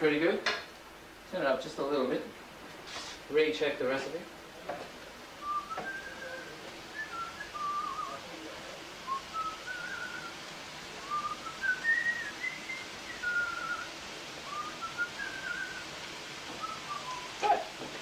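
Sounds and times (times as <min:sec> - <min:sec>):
man whistling a tune: 0:05.4 - 0:08.2, 0:09.1 - 0:10.3, 0:11.0 - 0:15.8, 0:16.6 - 0:17.6.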